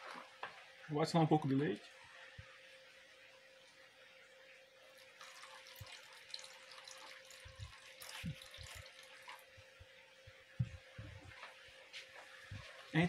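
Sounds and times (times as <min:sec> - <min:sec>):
milk pouring: 0:04.8 - 0:09.7.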